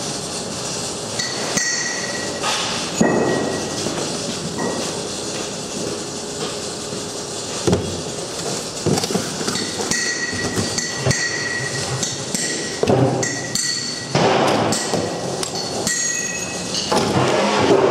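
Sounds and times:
construction site noise: 0.0s - 17.9s
hammer ringing on steel: 15.6s - 16.6s.

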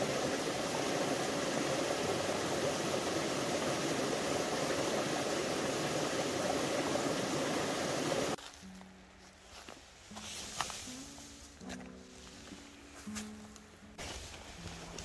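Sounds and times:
stream splashing over rocks: 0.0s - 8.4s.

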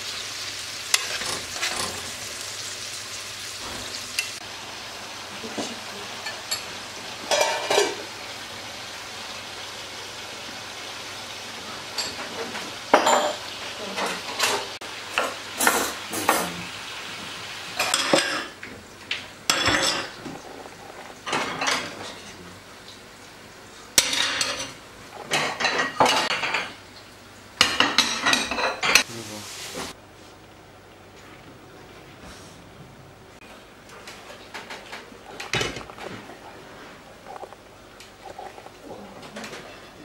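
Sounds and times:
dishes clinking and clattering: 0.9s - 2.2s, 5.5s - 8.1s, 11.9s - 16.6s, 17.8s - 22.4s, 24.0s - 26.8s, 27.6s - 29.1s, 34.0s - 36.4s, 38.3s - 40.0s.

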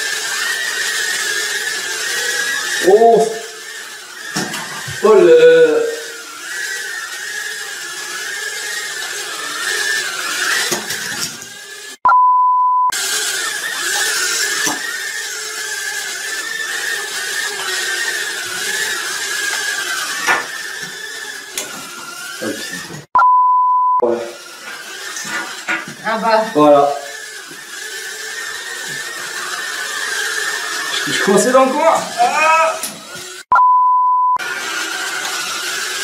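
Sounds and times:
toy drone propeller whine: 0.0s - 12.0s, 12.9s - 23.1s, 24.0s - 33.5s, 34.4s - 36.0s
electronic bleep: 12.1s - 12.9s, 23.2s - 24.0s, 33.5s - 34.4s.

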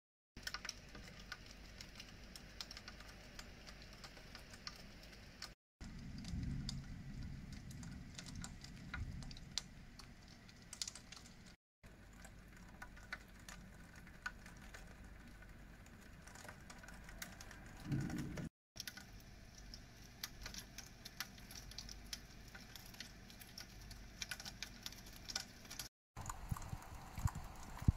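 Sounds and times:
steady hiss of rain: 0.4s - 24.4s, 25.2s - 27.9s
low rumble: 5.8s - 10.3s
raindrops tapping on window: 5.8s - 18.5s.

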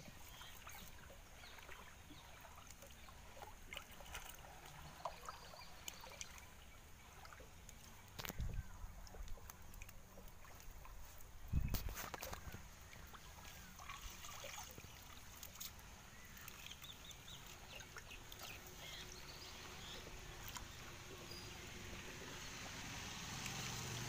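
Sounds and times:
birds chirping: 0.0s - 23.9s
fish splashing in a net: 9.4s - 19.0s.

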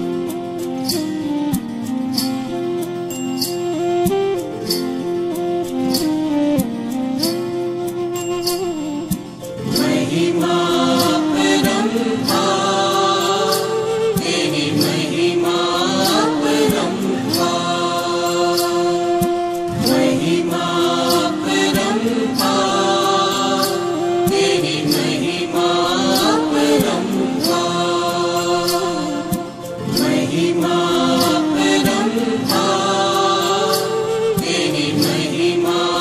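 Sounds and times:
devotional instrumental music: 0.0s - 36.0s.

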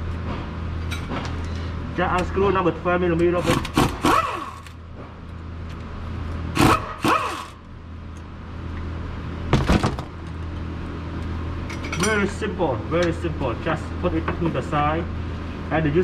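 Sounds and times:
steady low hum: 0.0s - 16.0s
impact wrench spinning: 3.5s - 4.8s, 6.6s - 7.6s.

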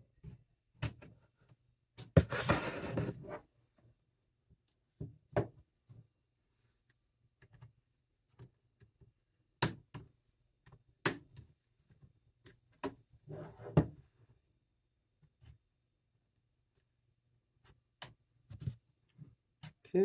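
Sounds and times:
scraping and handling noise: 2.1s - 3.5s.

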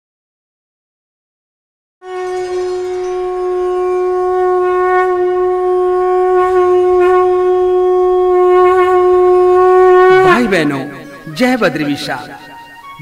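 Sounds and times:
conch shell blown: 2.0s - 11.3s.

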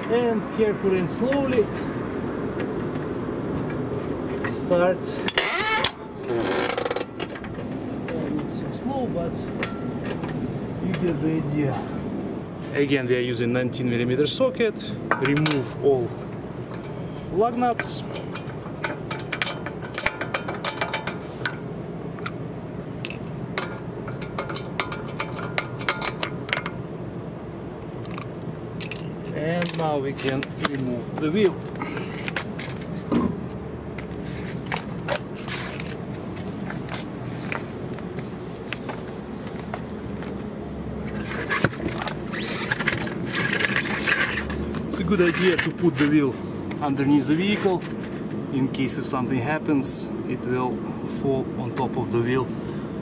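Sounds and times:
metal lug nuts clinking: 3.6s - 8.8s, 9.4s - 11.1s, 15.1s - 15.8s, 16.6s - 22.4s, 23.0s - 26.9s, 28.0s - 33.2s
tyre scraping along asphalt: 30.1s - 48.5s.

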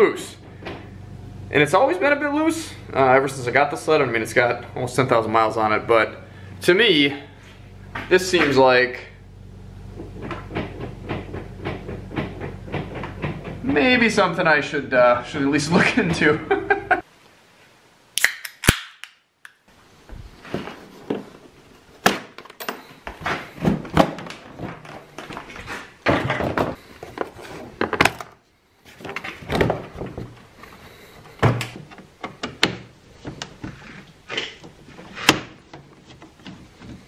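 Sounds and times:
knocks and clicks on plastic panels: 10.0s - 13.8s, 31.4s - 37.0s.

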